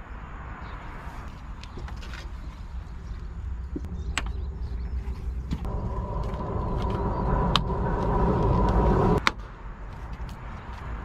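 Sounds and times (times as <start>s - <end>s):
vehicle rumbling past with whine: 3.9s - 9.2s.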